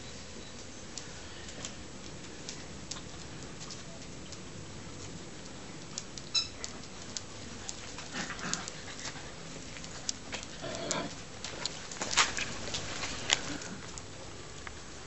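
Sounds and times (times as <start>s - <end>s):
dog claws clicking and scuffling: 5.0s - 14.1s.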